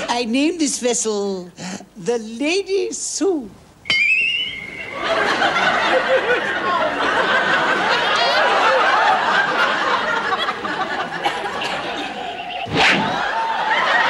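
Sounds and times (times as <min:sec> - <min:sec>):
audience laughter: 0:04.9 - 0:14.0.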